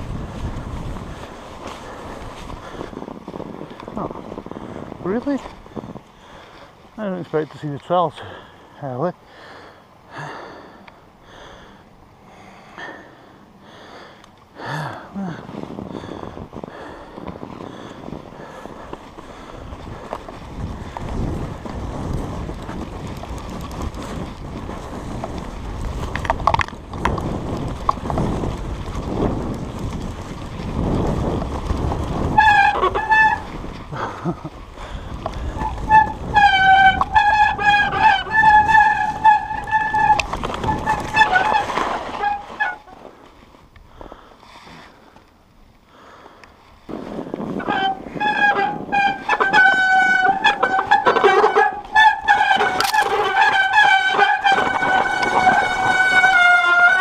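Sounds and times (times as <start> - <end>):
wind on camera: 0.0 - 6.9, 15.2 - 42.6, 46.8 - 51.1
tyres rumbling on snow: 0.0 - 45.2, 45.9 - 57.0
disc brakes squealing: 32.1 - 33.6, 35.4 - 43.0, 47.5 - 57.0.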